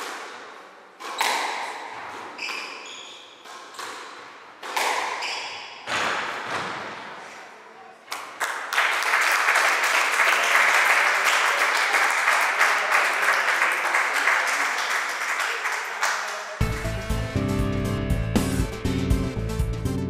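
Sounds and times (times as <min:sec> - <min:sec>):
audience applauding: 0:08.4 - 0:16.7.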